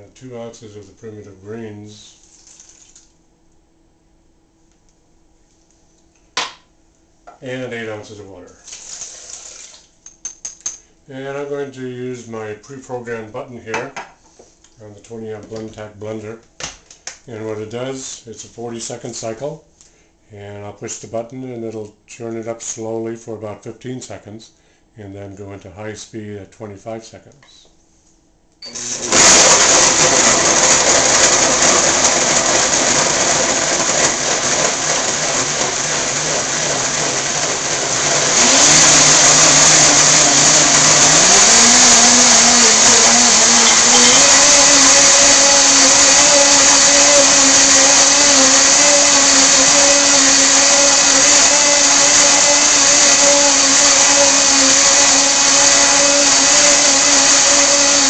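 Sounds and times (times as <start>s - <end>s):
blender running: 8.6s - 9.9s, 28.6s - 58.0s.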